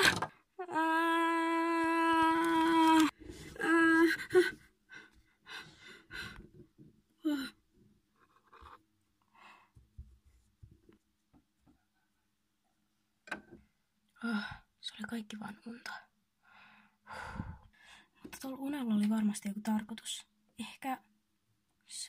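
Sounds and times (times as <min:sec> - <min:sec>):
person gasping and breathing hard: 0:17.1 - 0:17.8.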